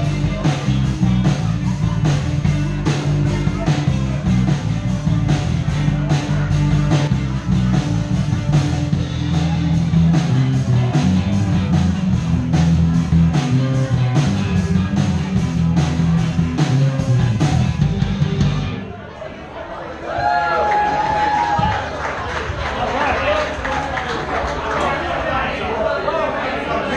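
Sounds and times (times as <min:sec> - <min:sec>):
drums: 0:00.0 - 0:19.0, 0:20.2 - 0:22.6
bass guitar notes: 0:00.0 - 0:19.2.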